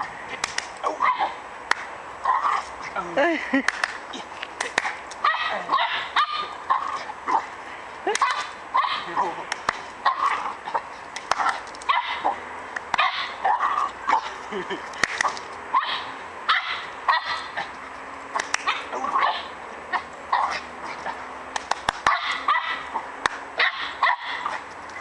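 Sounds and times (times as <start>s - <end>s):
sharp clicks: 0.4s - 0.8s, 11.1s - 11.9s, 21.5s - 22.4s
dog barking: 5.2s - 6.5s, 8.2s - 9.1s, 11.9s - 12.4s, 13.0s - 14.3s, 15.8s - 17.5s, 22.1s - 22.9s, 23.6s - 24.6s.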